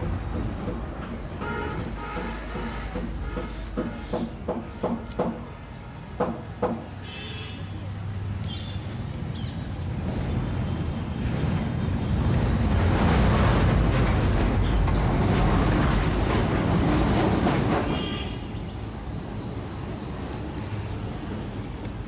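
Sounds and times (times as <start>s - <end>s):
passing vehicle rumble: 7.7s - 18.0s.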